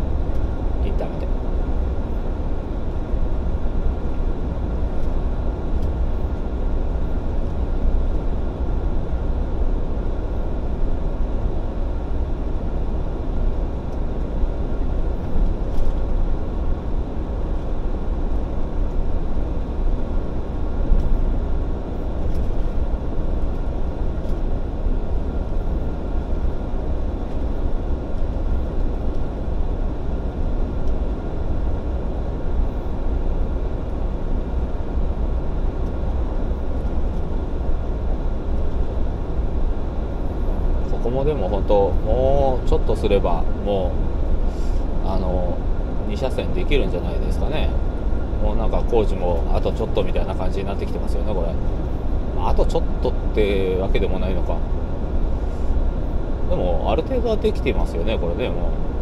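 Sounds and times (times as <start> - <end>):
heavy truck engine and road rumble: 0.0 - 59.0.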